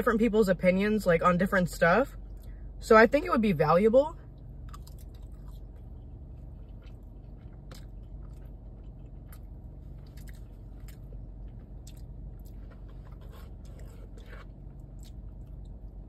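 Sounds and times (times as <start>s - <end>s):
steady low hum: 0.0s - 16.0s
close chewing: 4.6s - 16.0s.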